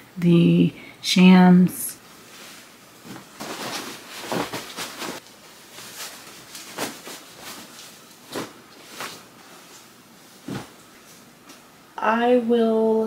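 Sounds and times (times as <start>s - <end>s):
fabric rustling: 2.1s - 11.4s
soft thumps of pillows: 10.4s - 10.8s.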